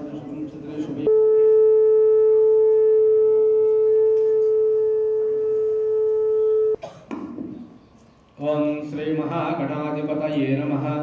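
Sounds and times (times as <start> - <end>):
electronic test tone: 1.1 - 6.8.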